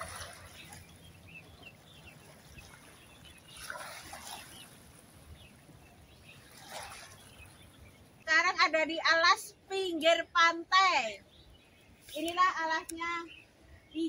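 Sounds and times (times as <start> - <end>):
seawater lapping against rocks: 0.0 - 8.2.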